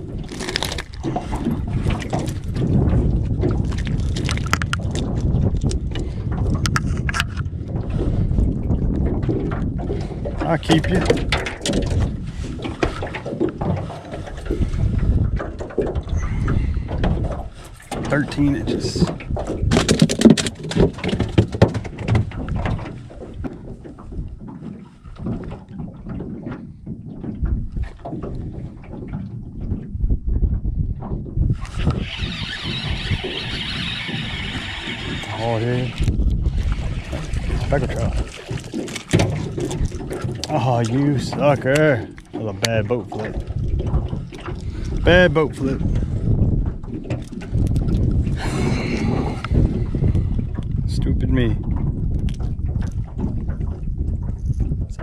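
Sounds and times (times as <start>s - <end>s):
water lapping at boat hull: 0.0s - 55.0s
wind rumbling on microphone: 0.0s - 55.0s
wind rushing: 47.5s - 55.0s.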